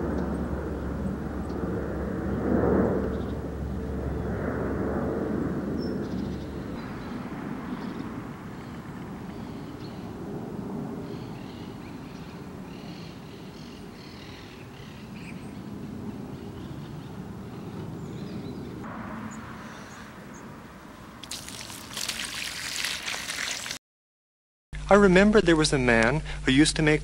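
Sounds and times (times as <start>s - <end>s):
low rumbling outdoor ambience: 0.0s - 23.7s, 24.8s - 27.0s
rushing hiss of water: 21.2s - 23.8s.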